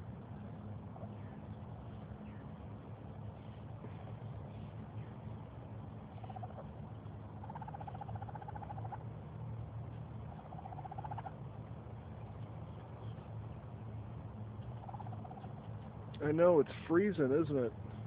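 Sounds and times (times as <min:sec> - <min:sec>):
low hum: 0:00.0 - 0:18.0
baby raccoon trilling cries: 0:06.2 - 0:06.7, 0:07.3 - 0:09.1, 0:10.4 - 0:11.4.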